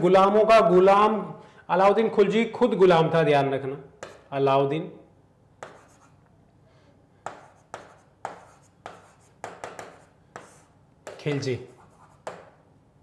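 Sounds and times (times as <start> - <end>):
marker writing on a board: 4.0 - 4.3, 5.6 - 6.2, 7.2 - 12.6.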